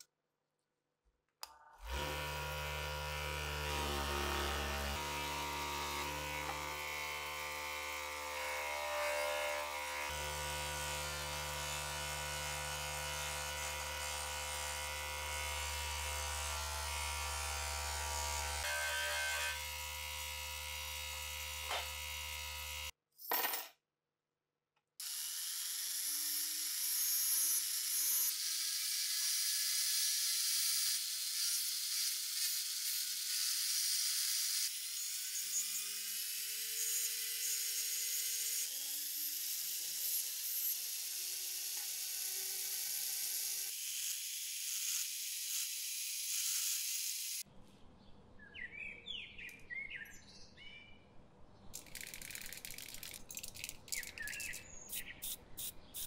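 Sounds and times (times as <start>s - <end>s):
bench grinder motor running: 1.8s - 22.9s.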